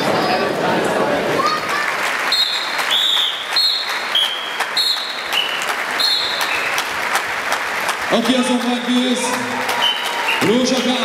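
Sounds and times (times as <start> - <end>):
audience applauding: 1.4 - 11.0
short high whistle-like tones: 2.3 - 6.7, 9.8 - 10.4.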